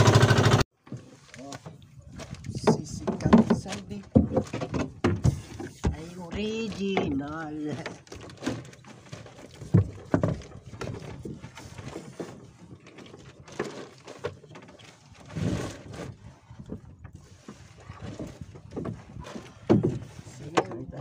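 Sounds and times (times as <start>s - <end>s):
knocks in a boat: 2.2s - 8.8s, 9.5s - 12.4s, 17.9s - 21.0s.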